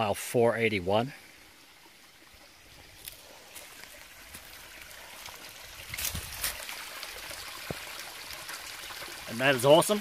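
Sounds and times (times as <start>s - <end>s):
stream running: 0.0s - 10.0s
water pouring into pool: 1.6s - 10.0s.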